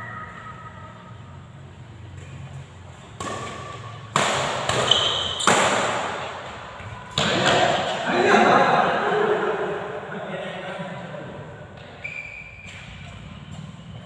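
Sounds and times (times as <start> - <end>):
racket striking shuttlecock: 3.1 - 8.1
shoe squeak: 4.7 - 7.7, 11.8 - 14.0.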